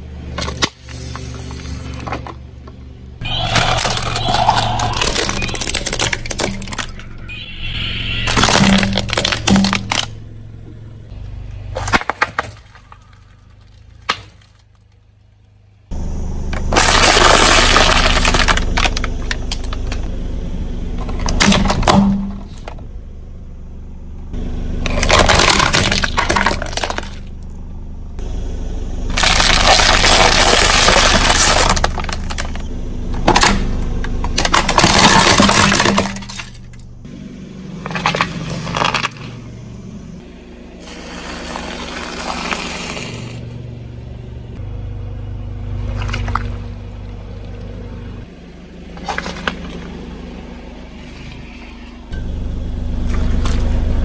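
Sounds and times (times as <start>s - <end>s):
tyres crushing brittle objects: 3.3s - 7.2s, 8.2s - 10.2s, 11.7s - 15.0s, 16.7s - 20.1s, 24.8s - 27.5s, 29.1s - 36.8s, 37.8s - 39.4s.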